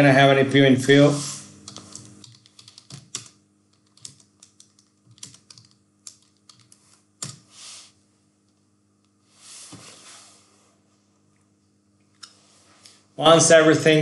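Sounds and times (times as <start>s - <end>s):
keyboard typing clicks: 1.7s - 7.4s.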